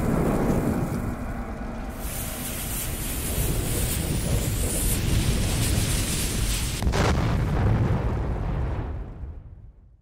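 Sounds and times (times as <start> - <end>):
low rumble: 0.0 - 10.0
rushing hiss: 1.9 - 6.8.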